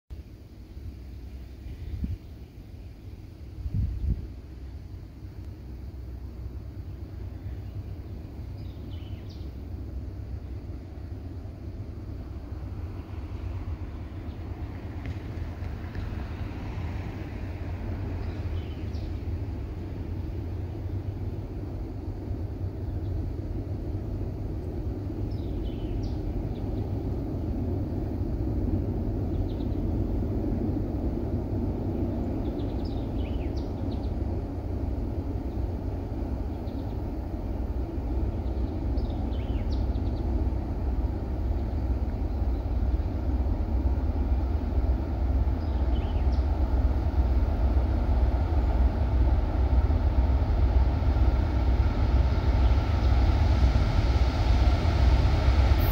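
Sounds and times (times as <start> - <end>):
diesel locomotives rumbling: 0.1 - 55.9
birds chirping: 6.7 - 10.8, 18.1 - 19.3, 25.0 - 27.2, 29.2 - 29.9, 31.9 - 34.3, 36.4 - 37.2, 38.2 - 40.5, 45.6 - 46.6.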